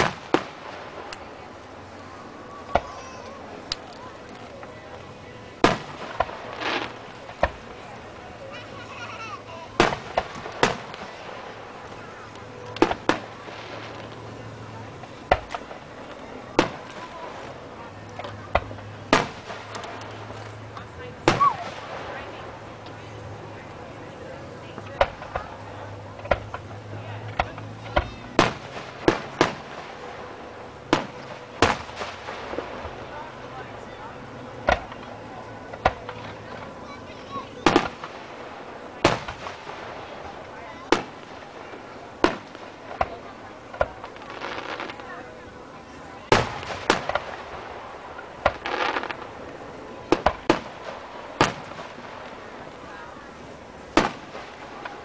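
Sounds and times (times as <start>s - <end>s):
fireworks launching and bursting: 0.0s - 55.0s
firework shells bursting: 37.6s - 43.1s, 46.3s - 49.5s, 50.1s - 52.7s.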